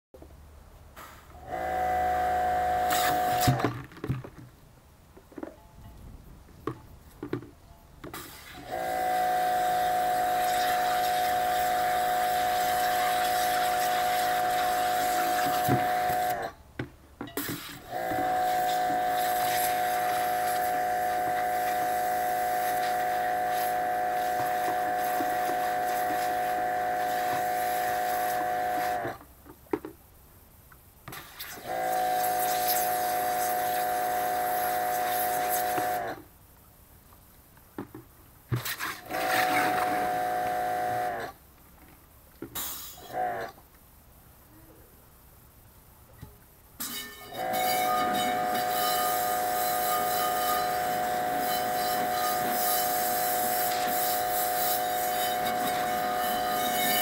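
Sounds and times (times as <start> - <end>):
pressure washer spraying: 2.8 - 3.6, 8.2 - 16.4, 17.6 - 29.0, 31.7 - 36.1, 47.4 - 57.0.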